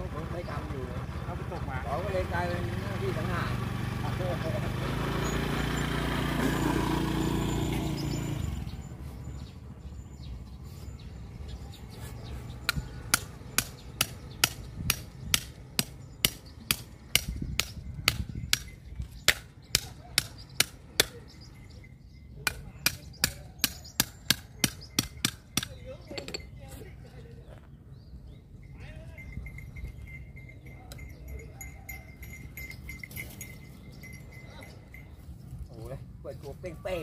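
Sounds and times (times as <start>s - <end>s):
motorcycle passing: 0.0s - 17.2s.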